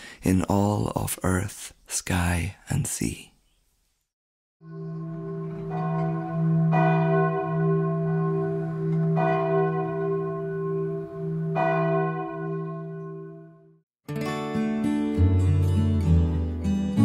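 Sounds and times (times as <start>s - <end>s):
church bell ringing: 4.6s - 13.8s.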